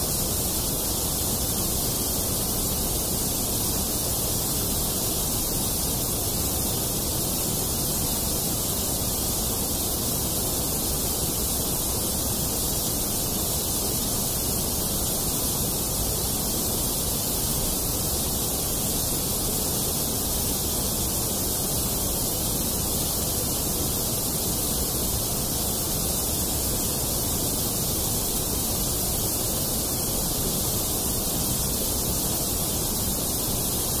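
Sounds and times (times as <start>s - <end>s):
steady hiss: 0.0s - 34.0s.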